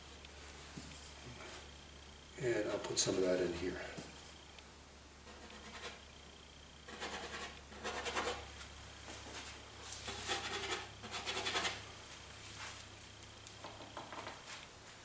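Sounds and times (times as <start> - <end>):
low room hum: 0.0 - 15.0
paintbrush scrubbing: 9.9 - 11.8.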